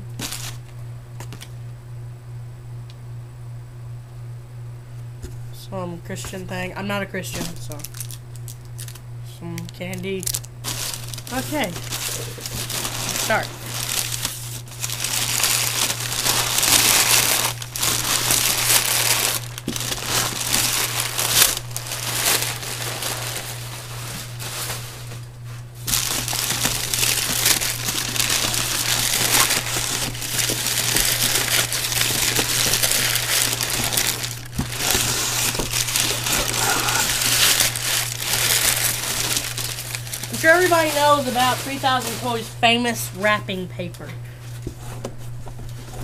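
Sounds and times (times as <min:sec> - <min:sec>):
packing paper crinkling: 0:00.0 - 0:01.5, 0:07.2 - 0:09.0, 0:09.6 - 0:43.0.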